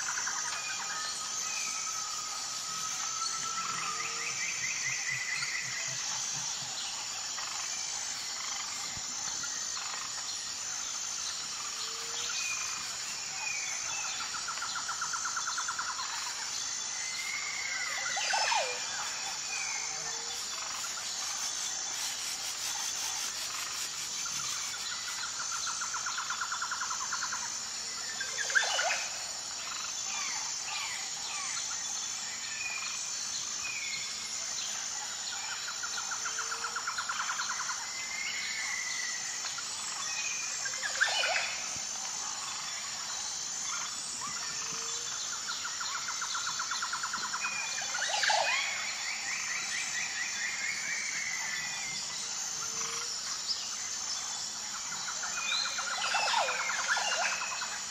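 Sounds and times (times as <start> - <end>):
high insect drone: 0.0 - 57.9.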